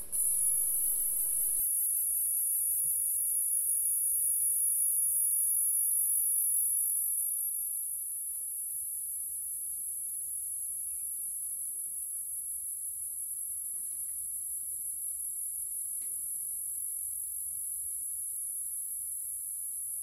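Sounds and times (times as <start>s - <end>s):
insects droning: 0.0s - 7.8s.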